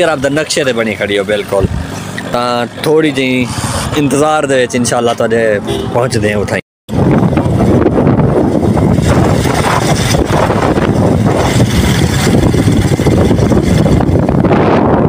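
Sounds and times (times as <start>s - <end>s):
wind buffeting microphone: 1.6s - 2.2s, 6.9s - 15.0s.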